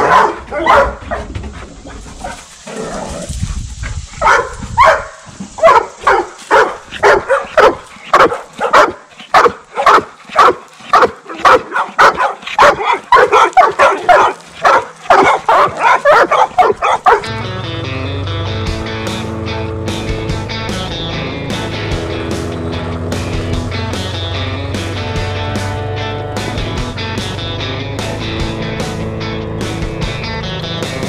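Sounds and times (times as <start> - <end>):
dog barking excitedly: 0.0 - 2.4, 4.2 - 17.4
music: 17.0 - 31.0.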